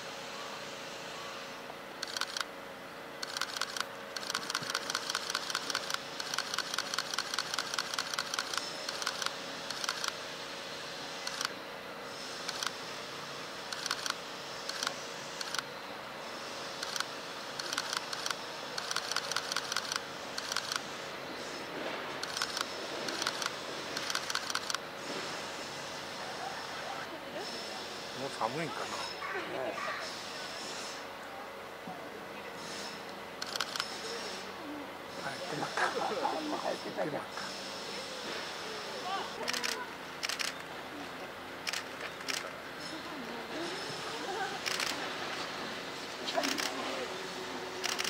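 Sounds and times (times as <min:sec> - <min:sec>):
camera shutters clicking in bursts: 0:02.0 - 0:02.5, 0:03.2 - 0:10.2, 0:11.2 - 0:11.6, 0:12.4 - 0:12.8, 0:13.6 - 0:15.7, 0:16.8 - 0:20.9, 0:22.2 - 0:24.8, 0:33.4 - 0:34.1, 0:39.4 - 0:40.7, 0:41.6 - 0:42.6, 0:44.6 - 0:45.0, 0:46.4 - 0:46.8, 0:47.8 - 0:48.0.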